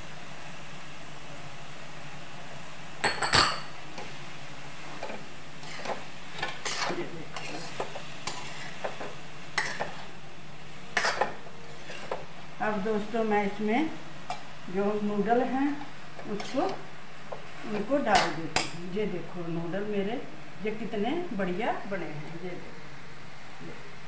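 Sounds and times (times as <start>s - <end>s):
metal spoon scraping a pan: 4.9s - 10.1s, 10.9s - 12.3s.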